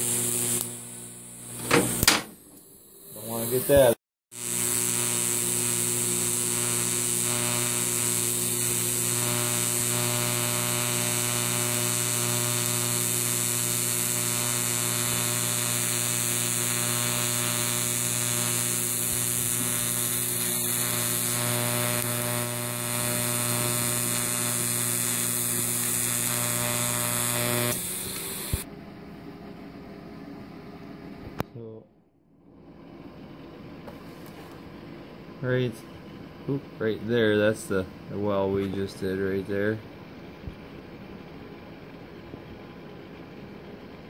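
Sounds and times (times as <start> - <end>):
welding arc buzzing: 0.0 - 28.7.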